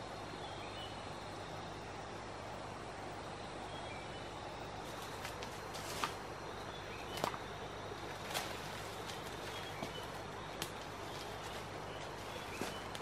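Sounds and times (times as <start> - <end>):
steady background hiss: 0.0 - 13.0
footsteps crunching on dry leaves: 4.8 - 6.3, 8.0 - 13.0.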